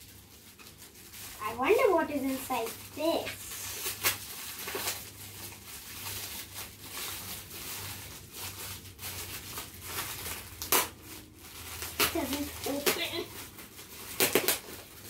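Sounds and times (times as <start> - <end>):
wrapping paper crinkling and tearing: 0.0 - 15.0.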